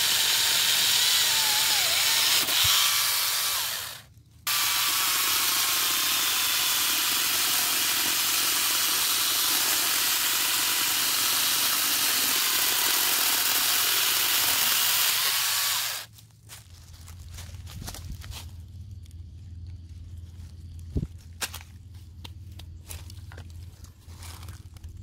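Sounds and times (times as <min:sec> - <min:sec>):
chainsaw cutting tree stump: 0:00.0 - 0:16.1.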